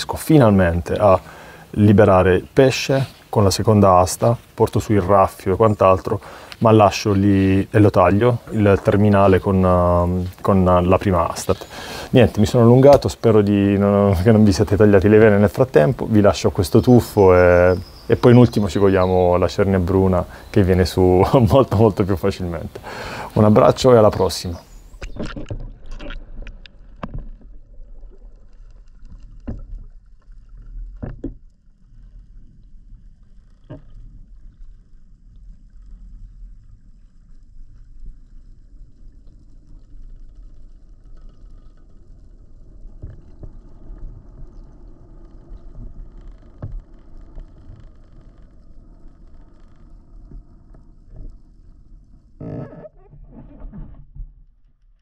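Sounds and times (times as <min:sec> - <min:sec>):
water rush: 0:00.0 - 0:29.6
muffled underwater rumble: 0:00.0 - 0:55.0.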